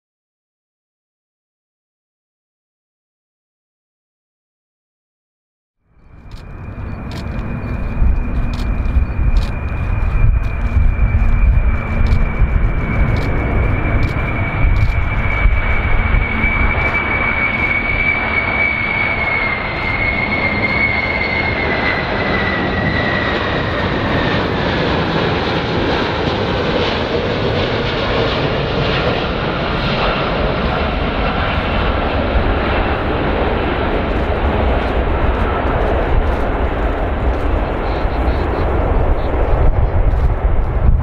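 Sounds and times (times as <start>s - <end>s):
high fan whine: 6.0s - 21.6s
jet engines roaring: 6.0s - 41.0s.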